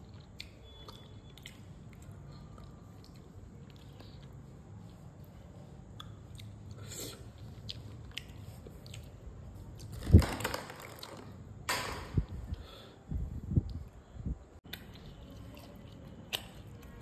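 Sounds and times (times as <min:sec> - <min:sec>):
chewing: 0:00.0 - 0:09.9, 0:14.7 - 0:17.0.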